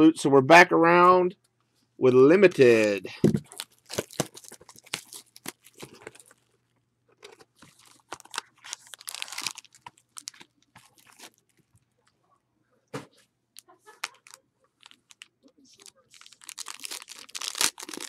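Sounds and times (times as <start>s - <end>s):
wrapper crinkling and tearing: 2.6s - 6.5s, 7.6s - 11.7s, 13.6s - 18.0s.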